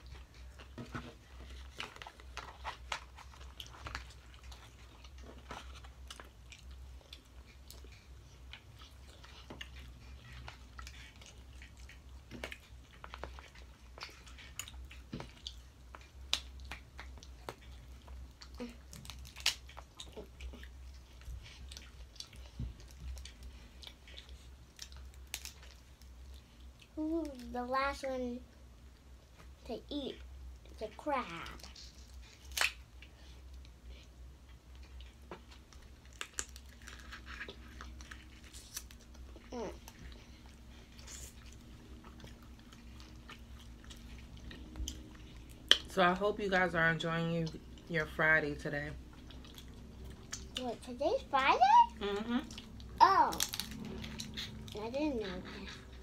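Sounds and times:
chewing: 0:00.0 - 0:28.0, 0:30.2 - 0:46.8, 0:48.9 - 0:56.0
shellfish shells cracking: 0:18.9 - 0:19.8, 0:25.1 - 0:25.6, 0:32.4 - 0:32.8, 0:53.3 - 0:53.9.

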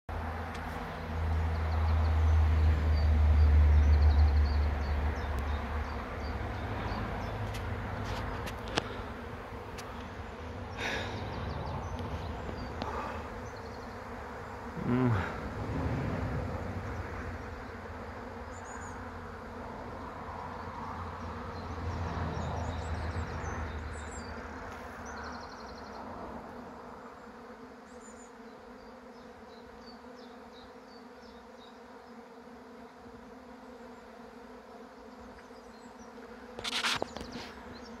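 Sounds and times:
bees buzzing: 0:00.1 - 0:38.0.

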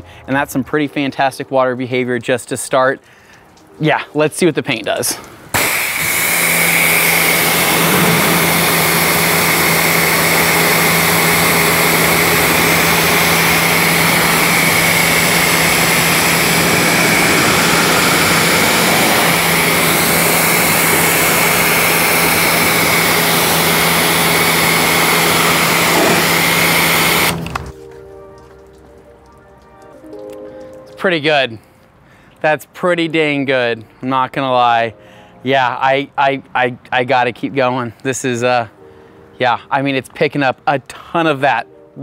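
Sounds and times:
pressure washer running: 0:05.5 - 0:27.8.

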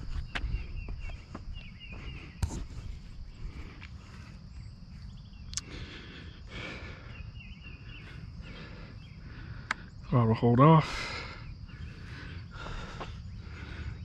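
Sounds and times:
birds chirping: 0:00.0 - 0:14.0
high insect drone: 0:00.0 - 0:14.0
sharp clicks: 0:09.6 - 0:09.8.

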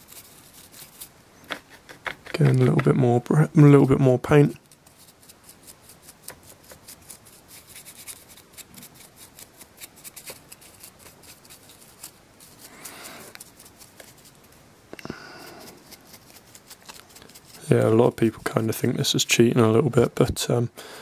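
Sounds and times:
brush scrubbing: 0:00.0 - 0:14.6, 0:15.4 - 0:19.1
dry brush ticking on miniature: 0:03.8 - 0:14.6, 0:15.7 - 0:18.7.

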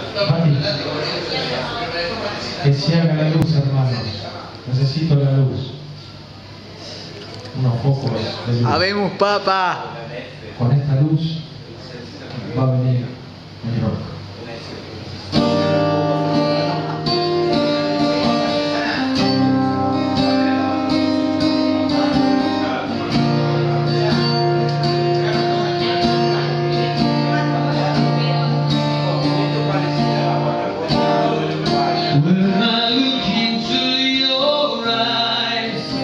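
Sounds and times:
acoustic guitar playing: 0:15.2 - 0:36.0.

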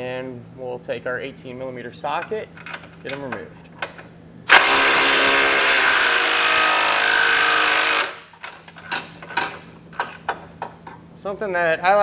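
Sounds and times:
impact wrench running: 0:04.5 - 0:10.6.

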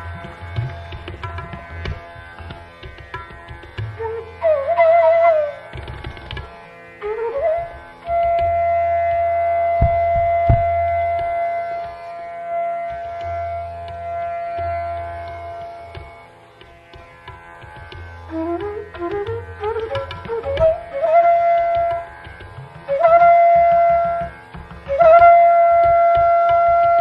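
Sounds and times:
droning string accompaniment: 0:00.0 - 0:27.0
tabla: 0:00.0 - 0:27.0.

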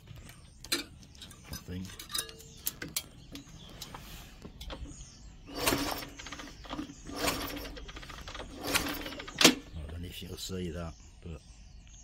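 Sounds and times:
motorcycle kick-starter turning engine over: 0:04.5 - 0:09.8
small engine turning over: 0:04.7 - 0:09.7.

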